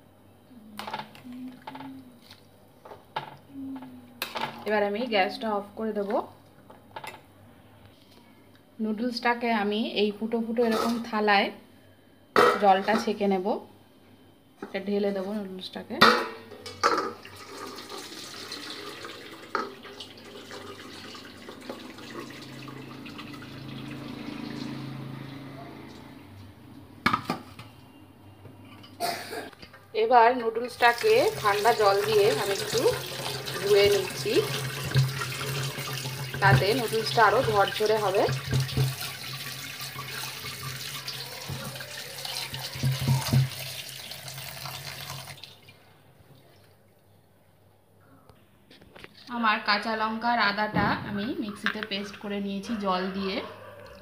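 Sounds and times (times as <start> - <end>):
tap water running into colander: 17.0 - 25.2, 30.7 - 45.7.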